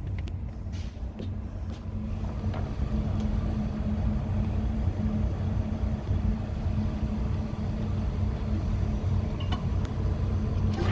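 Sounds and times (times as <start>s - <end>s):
outboard motor idling: 2.0s - 10.9s.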